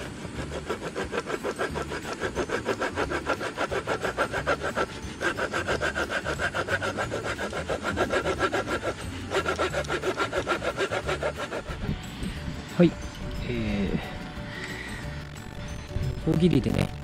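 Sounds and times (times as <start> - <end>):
hand saw cutting wood: 0.0 - 12.5.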